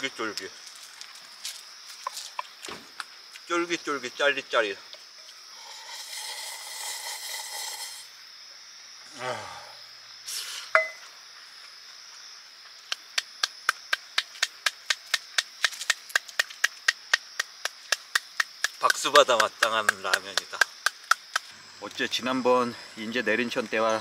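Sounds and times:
crickets chirping: 0:00.0 - 0:24.0
slurping broth: 0:05.6 - 0:08.1
short vocal sound: 0:09.1 - 0:09.8
person clapping hands: 0:12.9 - 0:21.5.

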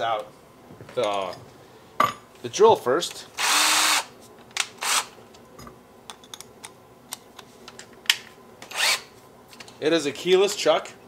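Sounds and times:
cordless drill whirring: 0:03.4 - 0:04.1, 0:04.8 - 0:05.1, 0:08.7 - 0:09.1.

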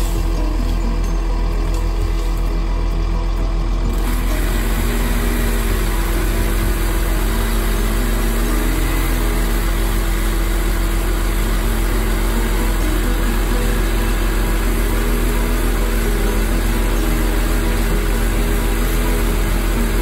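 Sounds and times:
truck engine idling: 0:00.0 - 0:20.0.

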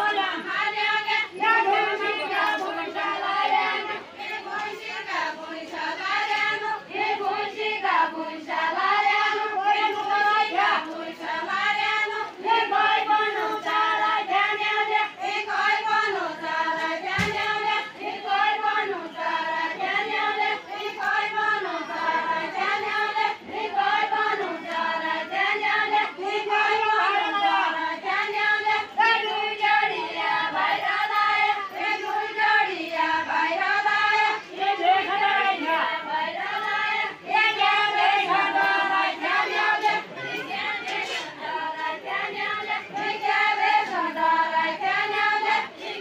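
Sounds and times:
group of women singing: 0:00.0 - 0:46.0.

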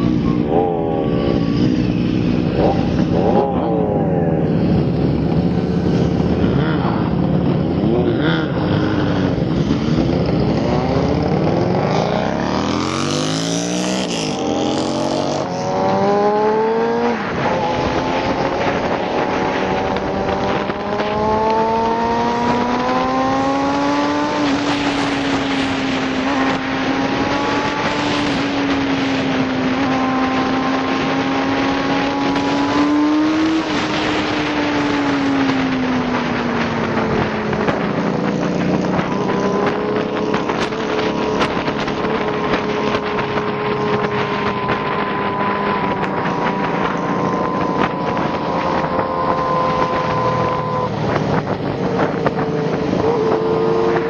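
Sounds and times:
motorcycle accelerating: 0:00.0 - 0:54.0
motorcycle engines revving: 0:00.0 - 0:54.0.

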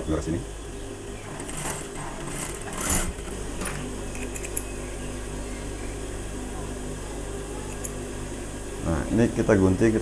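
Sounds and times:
sewing machine motor humming: 0:01.2 - 0:03.8.

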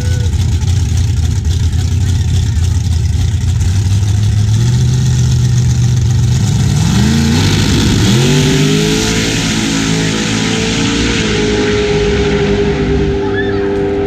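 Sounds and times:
drag race cars accelerating: 0:00.0 - 0:14.0.

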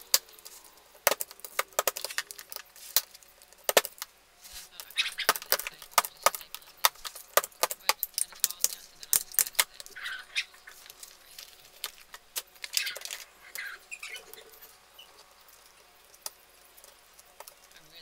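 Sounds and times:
paper shuffling: 0:04.4 - 0:13.3.

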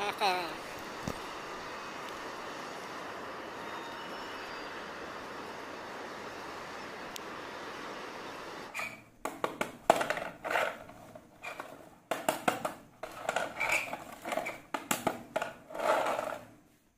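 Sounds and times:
steady rushing outdoor noise: 0:00.0 - 0:08.7.

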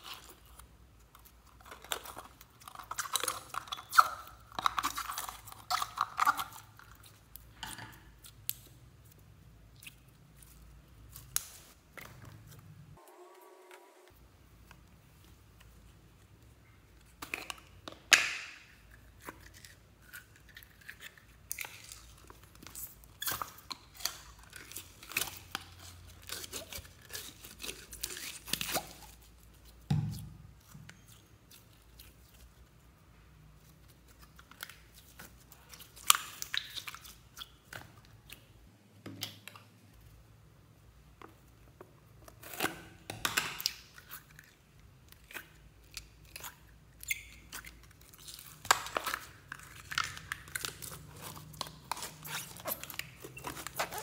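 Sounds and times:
sticky slime clicks and crackles: 0:08.2 - 0:12.2, 0:45.1 - 0:54.0.

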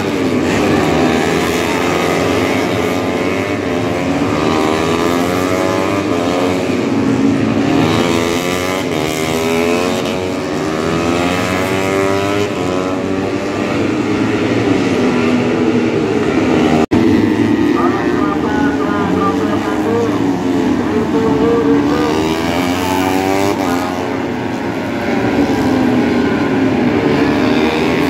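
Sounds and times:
racing motorcycle engines: 0:00.0 - 0:28.0.

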